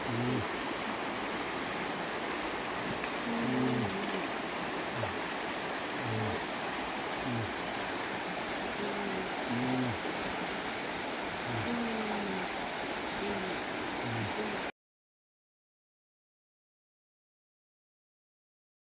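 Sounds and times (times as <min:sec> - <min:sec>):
river rushing over stones: 0:00.0 - 0:14.7.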